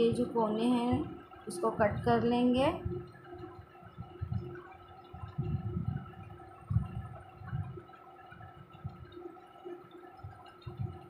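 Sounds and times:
background hum: 0.0 - 11.0
rumbles and bumps on microphone: 0.9 - 1.2, 1.8 - 9.2, 10.3 - 11.0.

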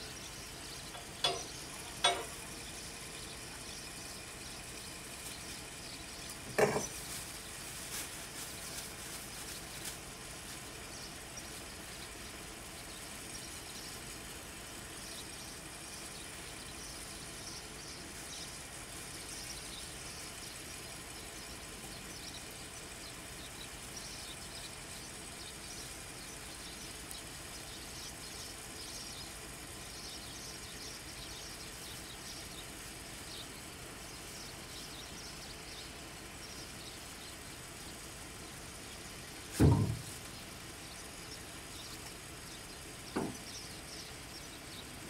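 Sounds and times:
steady background noise: 0.0 - 45.0
tool knocking against metal: 1.0 - 2.4.

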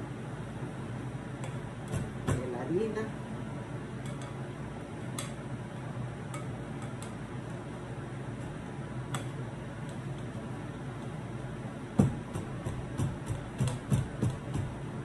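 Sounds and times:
steady low hum: 0.0 - 15.0
utensil clicking against bowl: 5.2 - 5.4.

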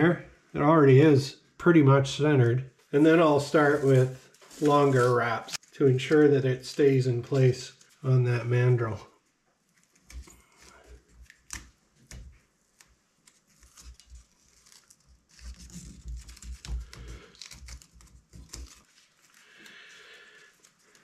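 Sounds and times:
masking tape crackling and tearing: 3.5 - 8.0, 9.7 - 21.0.

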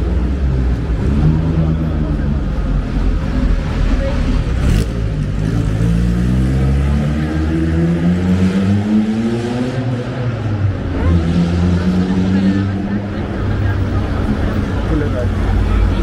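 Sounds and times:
car engine accelerating: 0.0 - 16.0.

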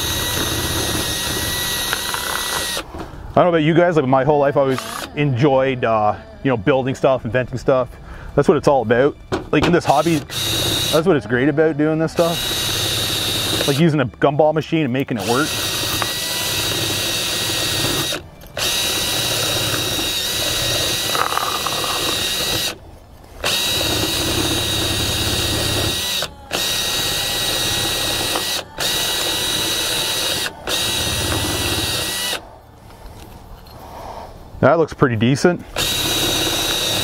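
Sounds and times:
drill motor whine: 0.0 - 2.8, 4.5 - 5.7, 9.7 - 14.1, 14.8 - 22.8, 23.4 - 32.4, 35.7 - 37.0.

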